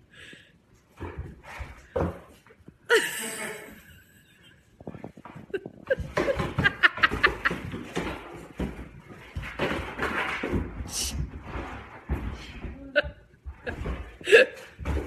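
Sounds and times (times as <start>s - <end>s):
person laughing: 2.9s - 4.6s, 5.3s - 7.8s.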